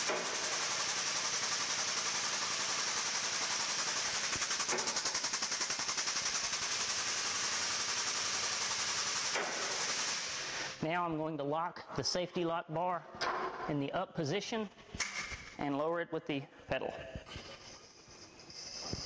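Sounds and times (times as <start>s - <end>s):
air pump hissing and chattering: 0.0s - 10.8s.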